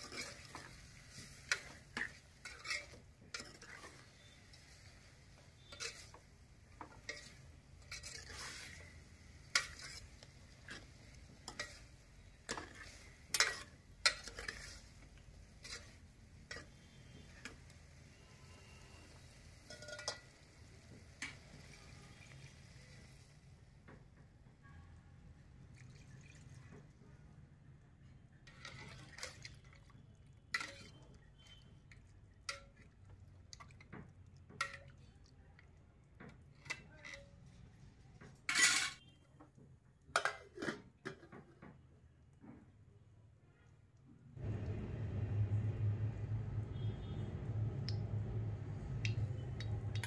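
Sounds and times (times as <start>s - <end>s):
ladle scraping metal pot: 0.0s - 22.4s, 28.4s - 29.8s, 30.5s - 32.9s, 33.6s - 35.0s, 36.3s - 39.2s, 40.1s - 41.8s.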